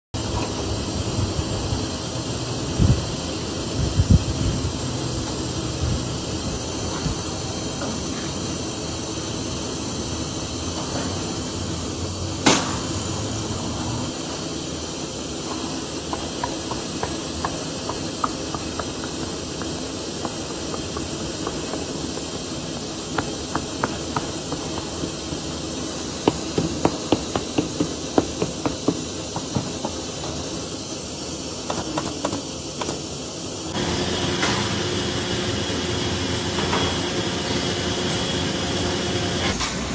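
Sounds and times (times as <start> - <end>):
steady workshop hiss: 0.2 - 39.9
hammer tapping rubber: 16.1 - 21.9, 26.2 - 30.0.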